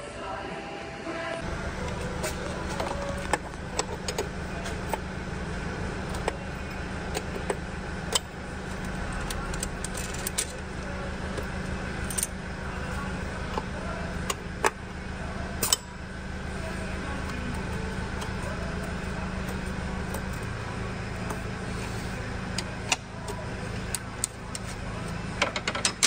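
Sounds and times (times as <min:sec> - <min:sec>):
steady low hum: 0:00.0 - 0:26.0
metal tools clinking on engine parts: 0:01.7 - 0:05.1, 0:06.0 - 0:14.8, 0:15.6 - 0:16.0, 0:22.5 - 0:26.0.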